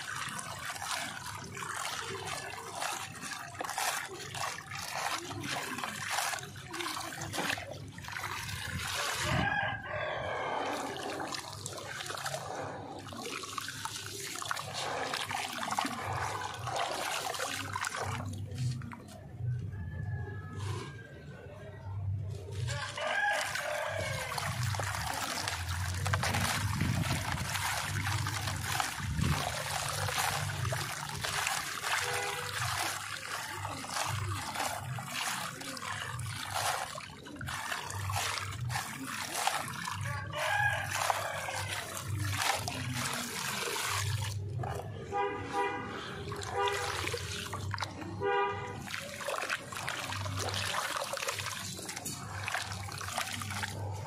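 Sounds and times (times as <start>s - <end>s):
hands squelching wet cement paste: 0.0s - 54.0s
vehicle horn honking: 45.0s - 46.8s, 48.2s - 48.8s.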